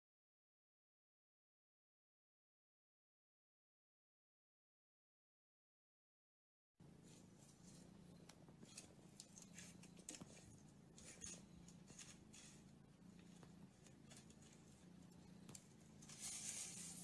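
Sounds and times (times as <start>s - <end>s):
low steady hum: 6.8s - 17.0s
scratching and crinkling clicks: 7.0s - 17.0s.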